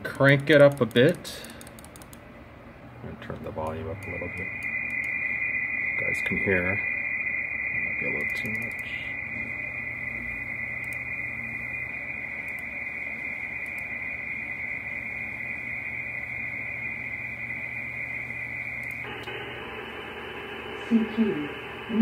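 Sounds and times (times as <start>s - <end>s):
radio band noise hiss: 3.0s - 22.0s
digital data tones: 3.5s - 20.7s.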